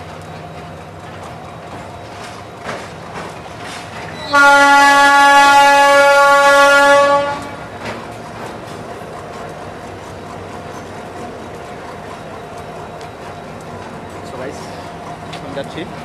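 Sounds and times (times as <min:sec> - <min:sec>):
locomotive engines idling: 0:00.0 - 0:16.0
locomotive horn blast: 0:04.2 - 0:07.7.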